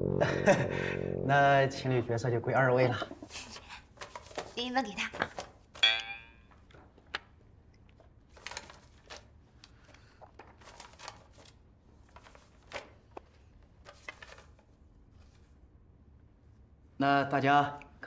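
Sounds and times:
paper rustling: 0:03.3 - 0:05.8, 0:07.9 - 0:15.6.

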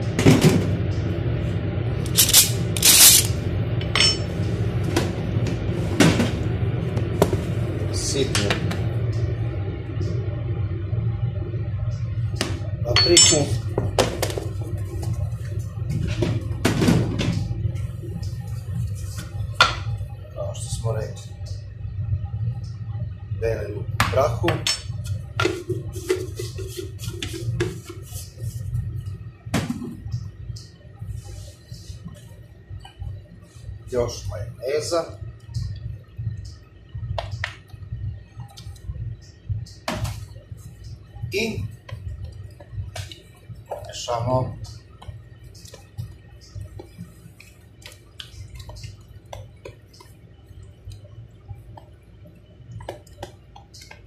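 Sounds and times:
low hum: 0:00.0 - 0:54.0
wet squelching of stirred sauce: 0:45.6 - 0:51.9.

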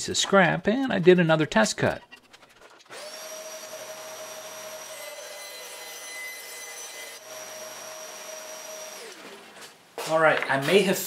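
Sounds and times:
bandsaw cutting plywood: 0:02.7 - 0:09.6.

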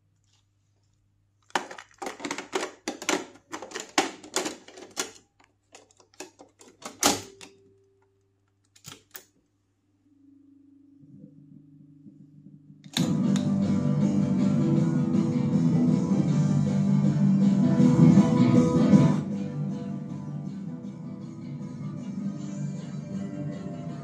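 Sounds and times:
faint low hum: 0:00.0 - 0:14.0
cassette deck clicks and clatters: 0:01.5 - 0:07.6.

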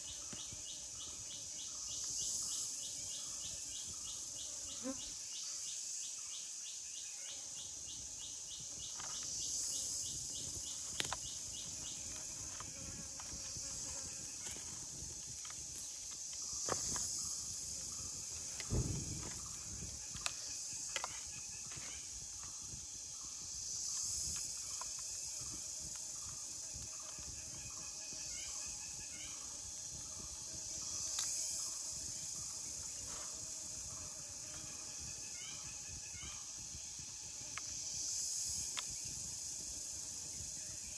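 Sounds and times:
insects buzzing: 0:00.0 - 0:40.9.

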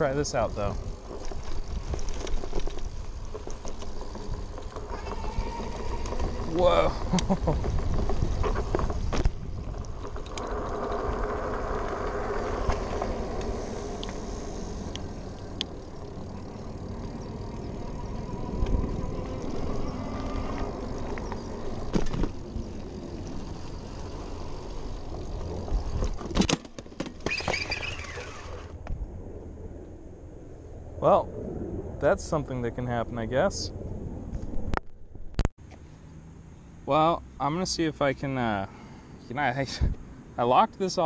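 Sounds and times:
tyre rumble: 0:00.9 - 0:28.8
wind on microphone: 0:04.4 - 0:16.4
electric motor whine: 0:10.0 - 0:26.2.

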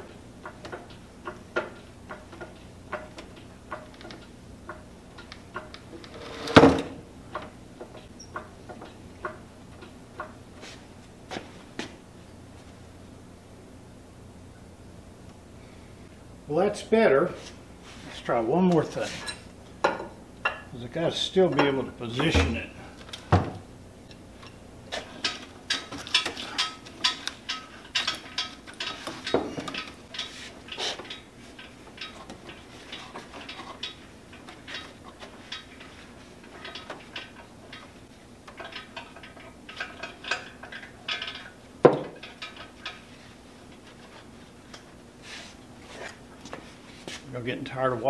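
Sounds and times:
metal clinks and rattles: 0:24.4 - 0:43.1.

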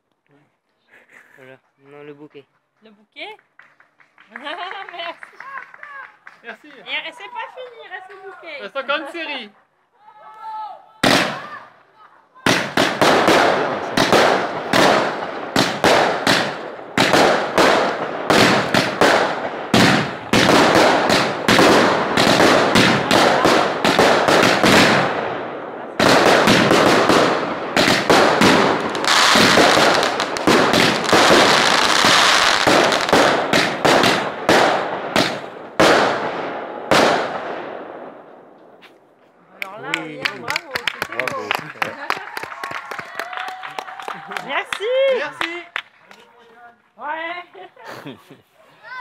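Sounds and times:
fireworks launching and bursting: 0:11.0 - 0:11.7, 0:12.4 - 0:39.2
hissing firework crackle: 0:12.5 - 0:25.3, 0:26.0 - 0:37.3.

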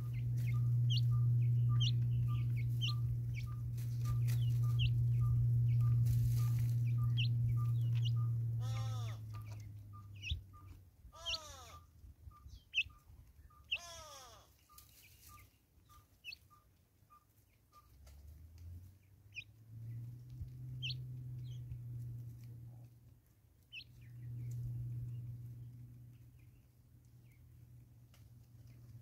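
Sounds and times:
birds chirping: 0:00.0 - 0:18.0, 0:19.0 - 0:22.3, 0:23.7 - 0:27.8
low steady hum: 0:00.0 - 0:29.0
bird calls falling in pitch: 0:08.6 - 0:09.3.

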